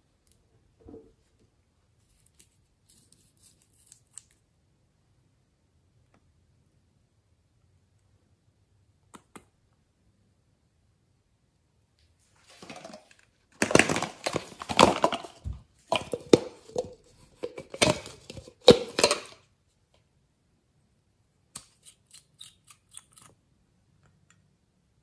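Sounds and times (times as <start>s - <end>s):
plastic container crinkling: 12.4s - 19.4s.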